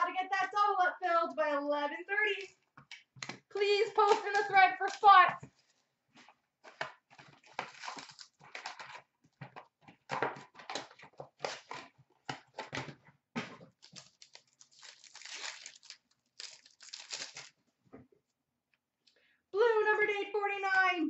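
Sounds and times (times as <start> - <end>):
cards rustling: 2.3 - 17.6
card pack wrappers tearing: 4.0 - 5.2, 7.2 - 8.9, 13.7 - 17.6.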